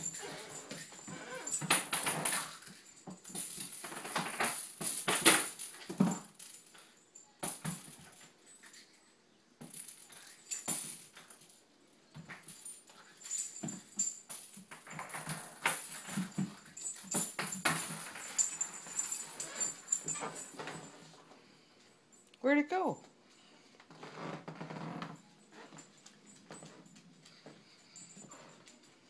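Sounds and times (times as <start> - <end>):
toy clattering and rattling: 0.0 - 9.0, 9.6 - 21.1.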